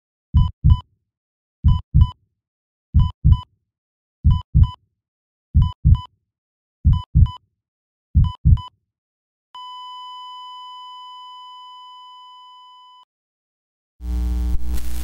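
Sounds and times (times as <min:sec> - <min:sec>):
heartbeat thumps: 0:00.4 - 0:00.8, 0:01.6 - 0:02.2, 0:03.0 - 0:03.4, 0:04.2 - 0:04.8, 0:05.6 - 0:06.1, 0:06.8 - 0:07.4, 0:08.2 - 0:08.7
long steady flatline beep: 0:09.6 - 0:13.1.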